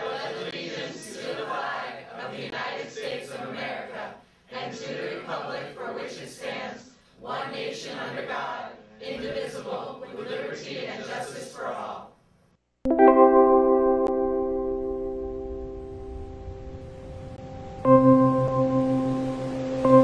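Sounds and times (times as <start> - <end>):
group reciting in unison: 0.0 - 12.2.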